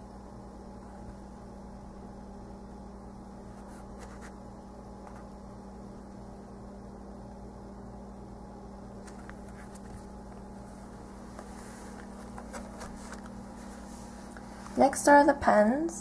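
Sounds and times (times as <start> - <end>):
steady background hum and hiss: 0.0 - 16.0.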